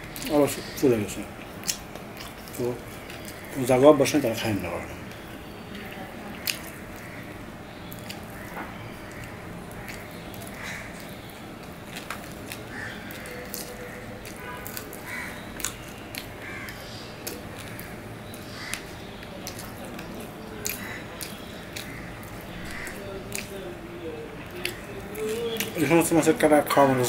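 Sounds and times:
mouth clicks and smacks chewing: 0:01.4 - 0:03.5, 0:05.1 - 0:07.1, 0:07.8 - 0:23.6, 0:24.4 - 0:26.0.

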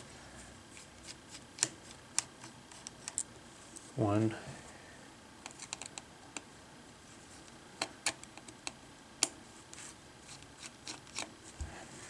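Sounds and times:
screwdriver clicking on plastic: 0:05.4 - 0:06.0.

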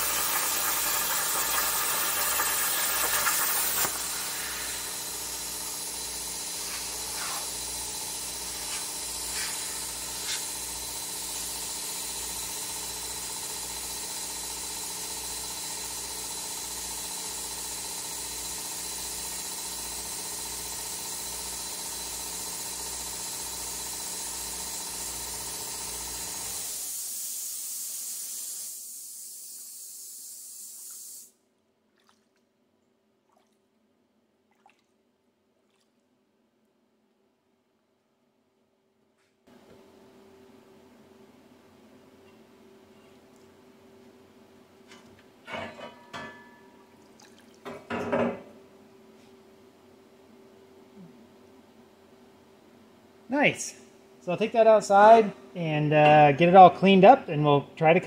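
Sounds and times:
hiss of cooling air: 0:00.0 - 0:14.0, 0:24.0 - 0:31.4
plasma cutter hissing: 0:00.0 - 0:19.2, 0:20.3 - 0:31.3.

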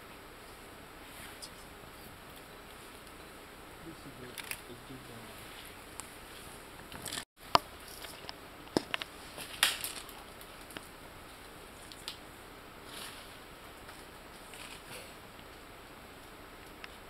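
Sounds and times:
leaves rustling: 0:00.0 - 0:17.0
twigs snapping: 0:06.9 - 0:10.9, 0:11.8 - 0:12.2.

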